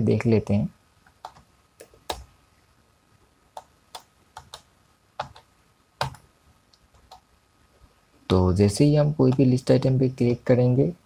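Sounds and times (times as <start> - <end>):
keyboard and mouse clicks: 1.0 - 2.3, 3.5 - 7.3, 9.2 - 9.5.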